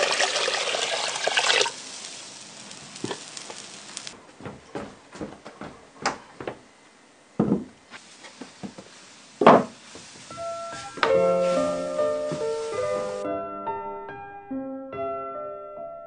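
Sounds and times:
soft piano music: 10.3 - 16.0.

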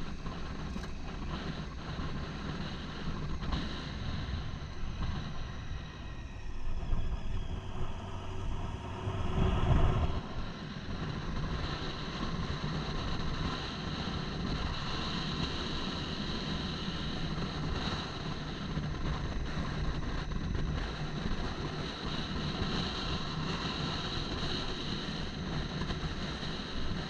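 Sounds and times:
motorcycle engine running: 0.0 - 27.0
wind rushing over microphone: 0.0 - 27.0.

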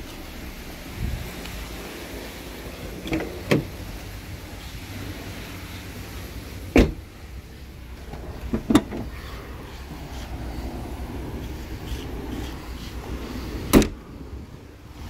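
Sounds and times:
car door latch clicking: 3.0 - 3.8, 6.7 - 7.0, 13.7 - 14.0
car door shutting thud: 3.0 - 3.8, 6.7 - 7.0, 13.7 - 14.0
tailgate latch clicks: 13.7 - 14.0.

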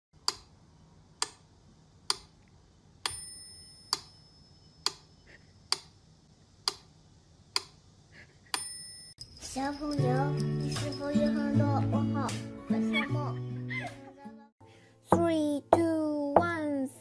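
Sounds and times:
metronome bell ringing: 3.1 - 4.8, 8.6 - 11.8
metronome ticking: 15.1 - 16.8.

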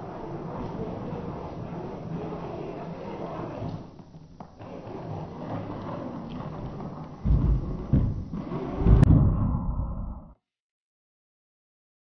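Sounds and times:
heavy low thumps: 7.3 - 10.3.

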